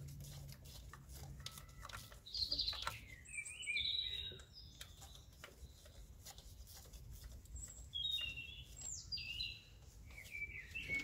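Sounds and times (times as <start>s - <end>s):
songbird whistling: 2.4s - 4.8s, 7.9s - 11.0s.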